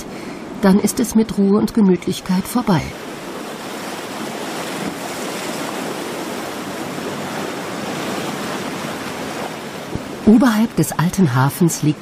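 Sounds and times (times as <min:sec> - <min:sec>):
sea waves washing against concrete: 0:02.2 - 0:11.0.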